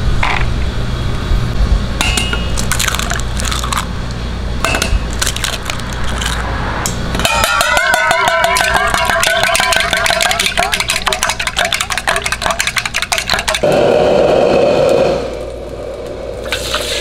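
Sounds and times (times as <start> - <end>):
low hum: 0.0 - 12.6
eggs cracked on steel bowl: 2.1 - 3.9, 7.5 - 13.6
beating eggs in metal bowl: 2.6 - 3.9, 7.2 - 13.9.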